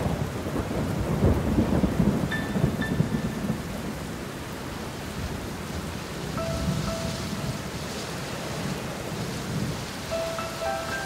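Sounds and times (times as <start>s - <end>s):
rumbling thunder: 0.0s - 4.5s
rain hissing: 0.0s - 11.0s.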